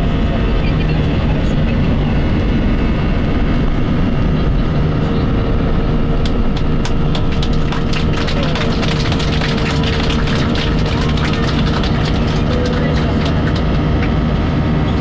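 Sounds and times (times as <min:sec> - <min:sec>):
jet engine and rolling noise: 0:00.0 - 0:15.0
steady hum: 0:00.0 - 0:15.0.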